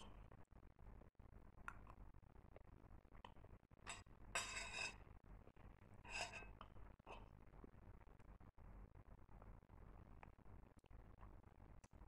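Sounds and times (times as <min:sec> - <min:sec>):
metal spoon clinking on plate: 0:03.9 - 0:05.0, 0:06.1 - 0:06.5.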